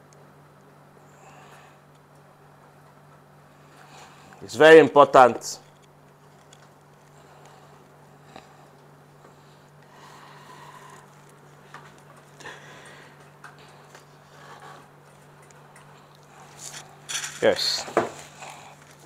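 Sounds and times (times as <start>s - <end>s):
steady low hum: 0.0s - 19.0s
hands working a wire: 10.6s - 19.0s.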